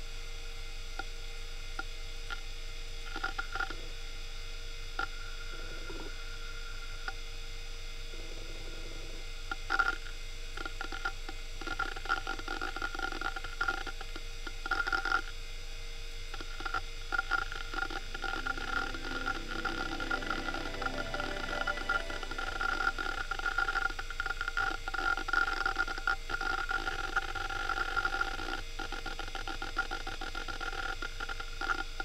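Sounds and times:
hard drive humming: 0:16.4 - 0:28.9.

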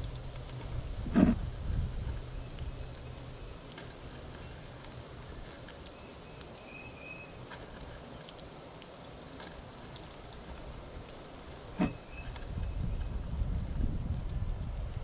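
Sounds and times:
steady low rumble: 0:00.0 - 0:05.5, 0:10.0 - 0:15.0
squirrel cracking and chewing seeds: 0:00.0 - 0:15.0.

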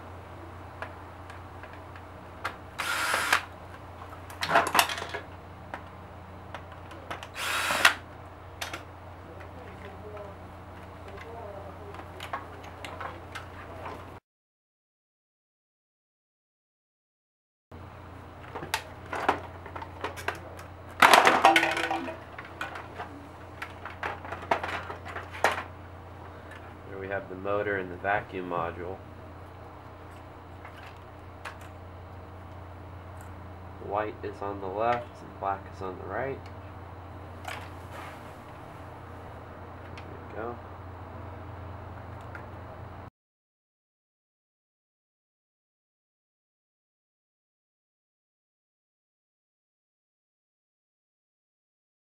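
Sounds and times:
cordless drill running: 0:02.8 - 0:03.5, 0:07.3 - 0:08.0.

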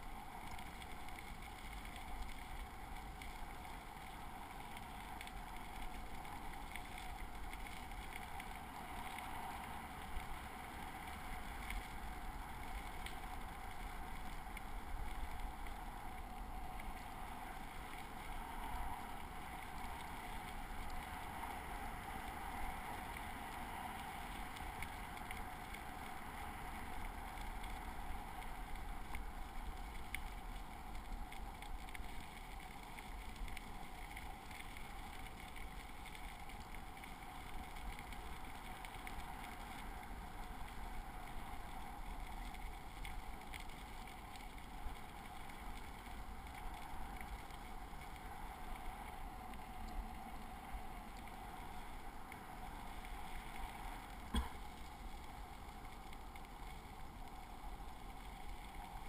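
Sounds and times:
bicycle tyres on gravel: 0:00.0 - 0:59.0
light ticks: 0:00.1 - 0:59.0.

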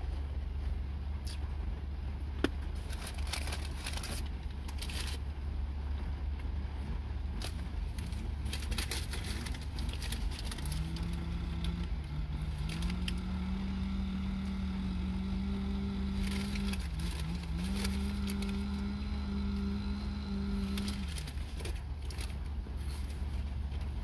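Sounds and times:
car cabin rumble: 0:00.0 - 0:24.0
low held hum: 0:00.0 - 0:24.0
paper rustle: 0:02.8 - 0:05.2, 0:07.4 - 0:11.2, 0:16.1 - 0:18.7, 0:20.7 - 0:23.9
crunching and chewing chicken: 0:07.3 - 0:13.6, 0:16.0 - 0:19.0.

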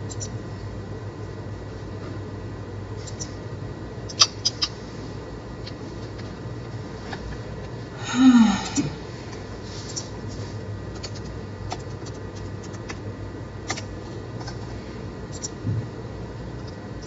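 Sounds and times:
room hiss and hum: 0:00.0 - 0:17.0
short falling vocal sound: 0:08.0 - 0:09.0
mouse and keyboard clicks: 0:11.0 - 0:13.0.

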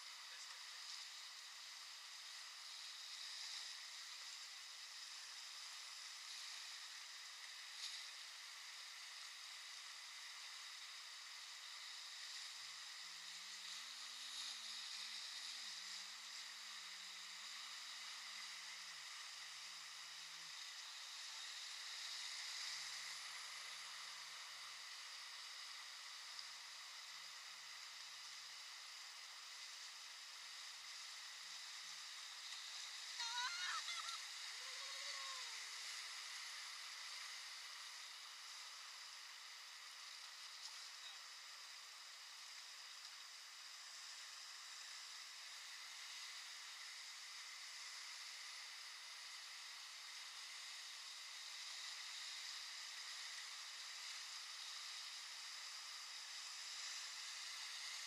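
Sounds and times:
river rapids rushing: 0:33.0 - 0:36.6
high cry: 0:33.2 - 0:35.6.

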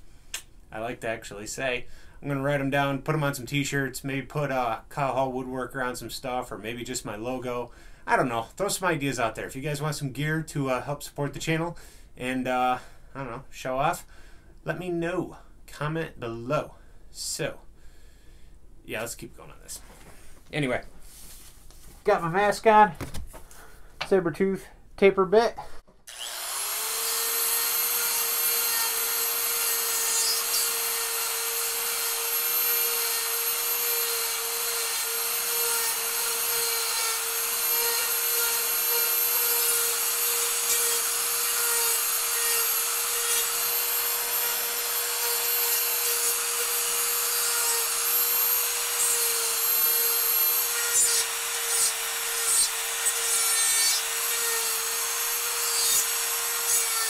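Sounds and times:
bit rasping wood: 0:26.1 - 0:57.0
die grinder whining: 0:26.1 - 0:57.0.

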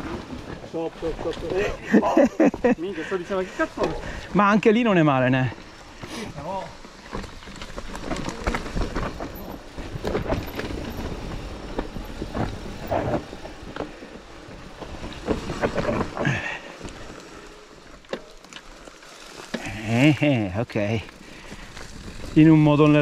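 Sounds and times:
tyres crunching on rocky trail: 0:00.0 - 0:23.0
bike knocks and rattles: 0:05.4 - 0:17.2.

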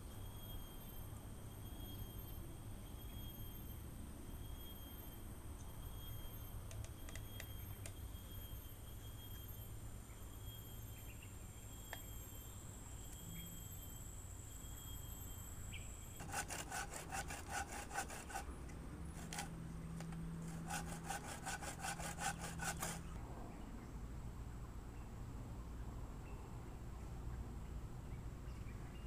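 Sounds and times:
saw cutting through a log: 0:16.2 - 0:19.5, 0:20.4 - 0:23.1.

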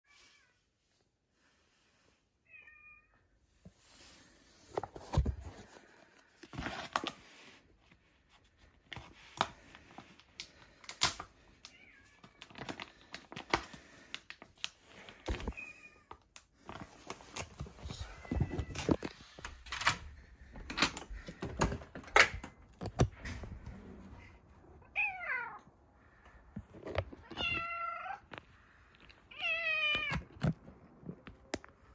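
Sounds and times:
handling clicks and rustles: 0:16.3 - 0:23.8
cat meowing: 0:24.8 - 0:25.6.

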